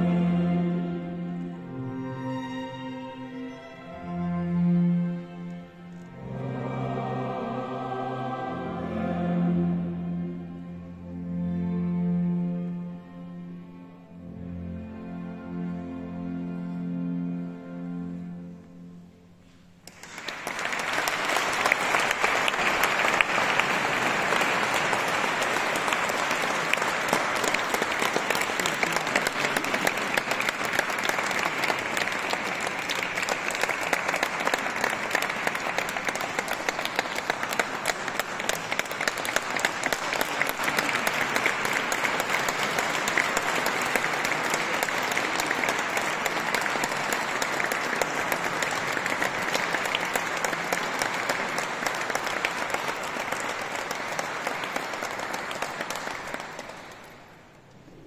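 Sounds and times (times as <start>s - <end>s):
crowd applauding: 19.8s - 58.0s.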